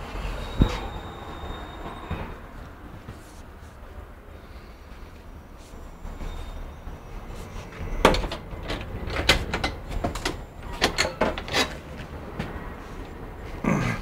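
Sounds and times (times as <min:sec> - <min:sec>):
bus engine rumble: 0:00.0 - 0:14.0
sharp knocks and clatters: 0:07.8 - 0:12.6.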